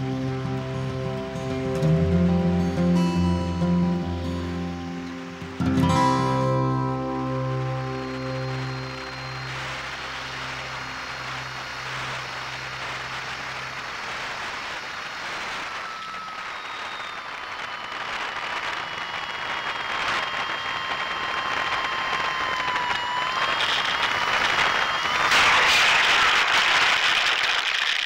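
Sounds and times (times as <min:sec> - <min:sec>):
background music: 0:00.0 - 0:13.3
rushing wind: 0:04.0 - 0:28.0
model plane motor whine: 0:07.9 - 0:28.0.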